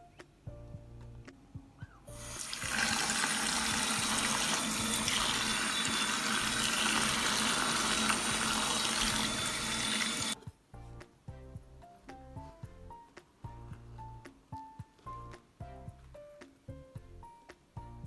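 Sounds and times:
tap water running in sink: 0:02.2 - 0:10.4.

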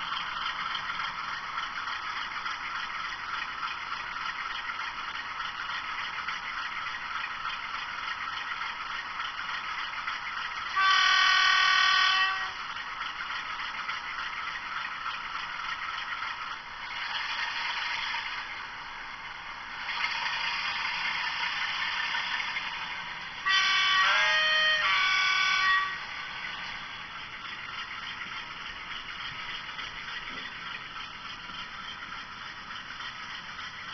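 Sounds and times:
diesel locomotive engine: 0:00.0 - 0:33.9
train horn: 0:10.7 - 0:12.7, 0:23.4 - 0:26.4.

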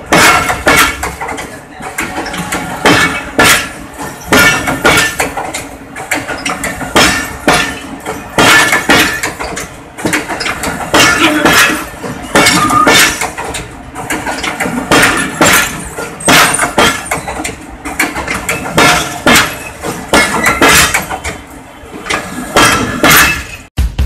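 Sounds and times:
train wheels clanking on rails: 0:00.0 - 0:23.7
drum music: 0:23.8 - 0:24.0.

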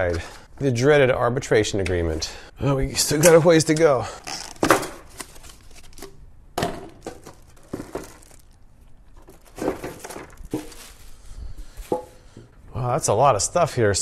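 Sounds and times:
cardboard and plastic wrap crinkling: 0:04.2 - 0:06.2, 0:06.9 - 0:12.2.

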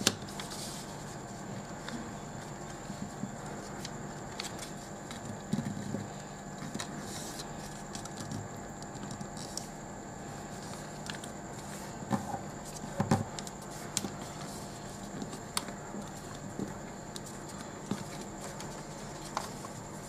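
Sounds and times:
paper rustling: 0:10.5 - 0:20.0.

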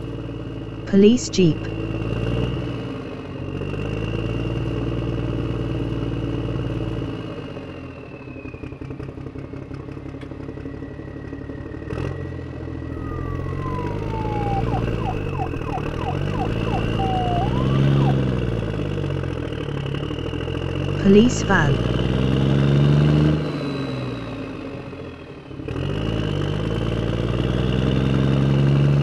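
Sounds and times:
police siren wailing: 0:12.9 - 0:18.7, 0:21.0 - 0:21.8
vehicle engine running: 0:12.9 - 0:18.8.

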